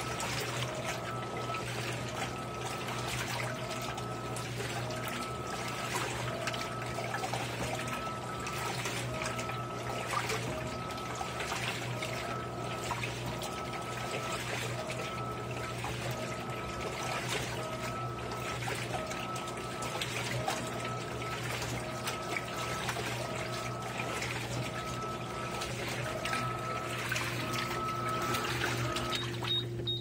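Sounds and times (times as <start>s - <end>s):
agitator whine: 0.0s - 30.0s
washing machine motor hum: 0.0s - 30.0s
water sloshing and churning: 0.0s - 30.0s.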